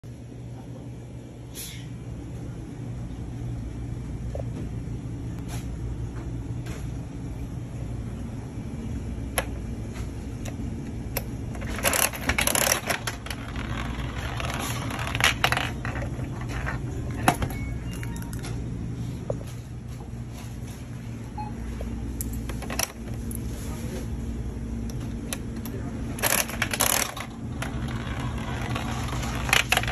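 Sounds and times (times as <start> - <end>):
gumball rolling down plastic chute: 26.6 - 29.9.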